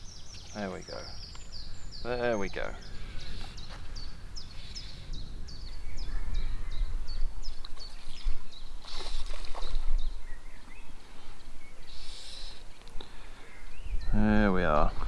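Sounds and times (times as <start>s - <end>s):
wind buffeting microphone: 0.0s - 11.8s, 13.6s - 15.0s
small bird chirping: 0.0s - 14.4s.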